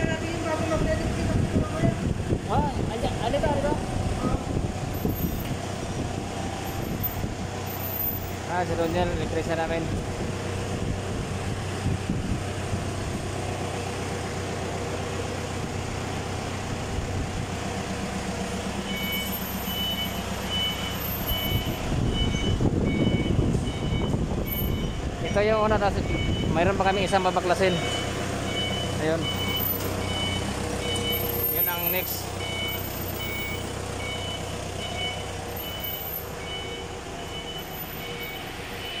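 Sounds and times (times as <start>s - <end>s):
forklift engine running: 0.0s - 39.0s
reversing alarm beeping: 18.8s - 39.0s.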